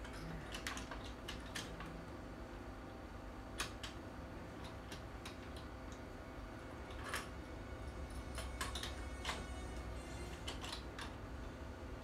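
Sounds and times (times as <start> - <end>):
low steady hum: 0.0 - 12.0
small metal parts clicking: 8.1 - 9.4.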